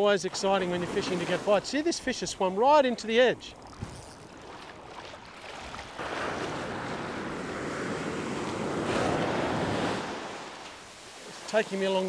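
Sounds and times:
ocean wave breaking on sand: 5.6s - 12.0s.

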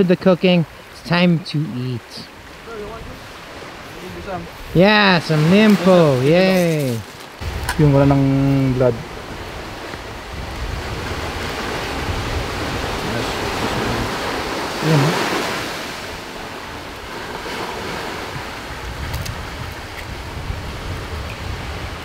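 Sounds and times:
ocean surf: 0.0s - 22.0s
wind on microphone: 2.3s - 22.0s
short vocal sound: 14.8s - 15.3s.

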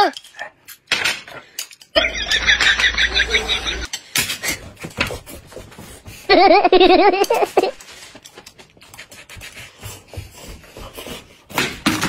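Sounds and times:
high warbling giggle: 2.0s - 3.9s.

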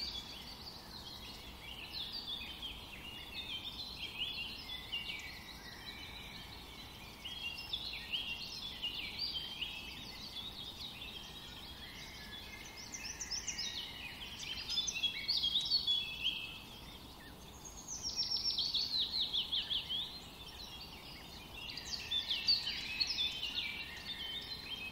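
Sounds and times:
small birds chirping: 0.0s - 24.9s.

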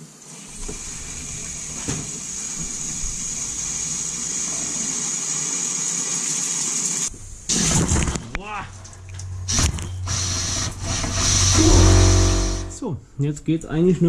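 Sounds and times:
compressed air and water hissing: 7.1s - 8.2s, 9.2s - 12.7s.

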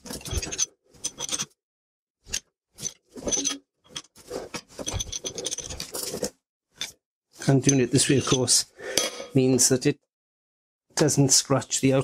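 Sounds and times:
metal scraping and creaking: 0.0s - 1.6s, 2.3s - 8.6s.

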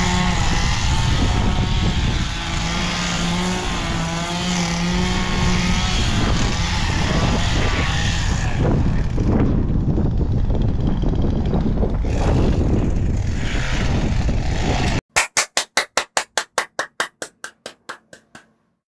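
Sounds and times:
wind buffeting microphone: 0.2s - 4.0s, 4.8s - 15.0s.

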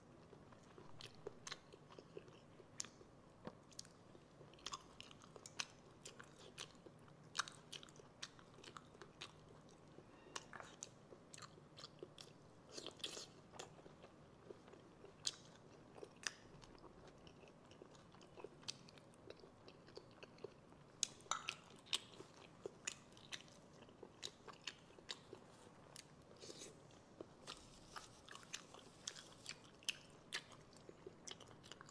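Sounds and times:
wet chewing and mouth smacks: 0.5s - 31.9s.

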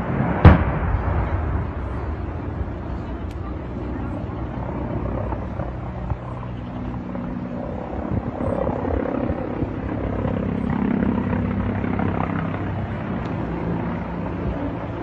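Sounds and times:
aircraft engine rumble overhead: 0.0s - 15.0s.

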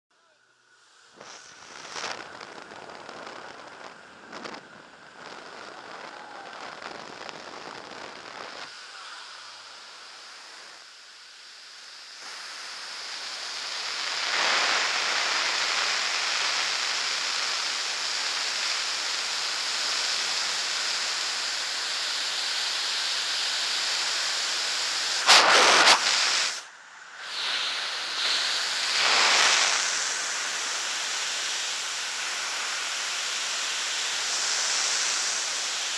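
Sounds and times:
wind rushing over microphone: 1.2s - 8.7s, 25.2s - 26.6s.

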